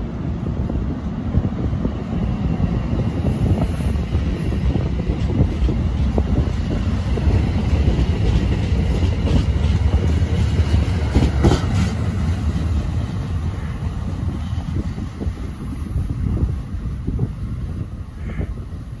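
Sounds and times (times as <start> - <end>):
train clatter: 0.0 - 19.0
train wheels rumbling on rails: 0.0 - 19.0.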